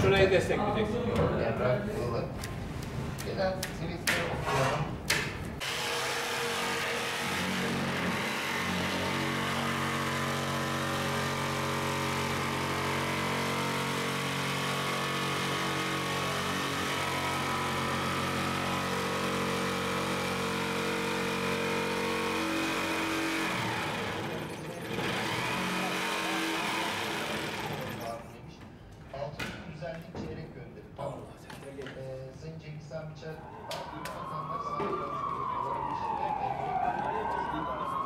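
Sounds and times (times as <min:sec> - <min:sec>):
power tool cutting sheet metal: 0:05.6 - 0:28.2.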